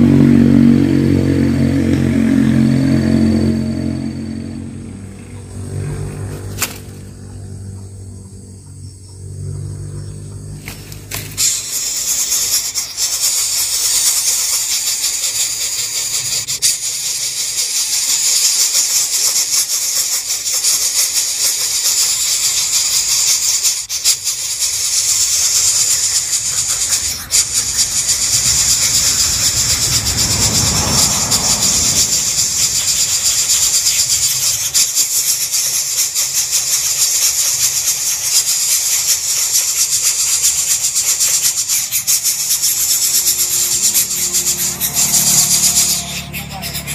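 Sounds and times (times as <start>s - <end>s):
nestlings rasping hiss: 10.6s - 46.2s.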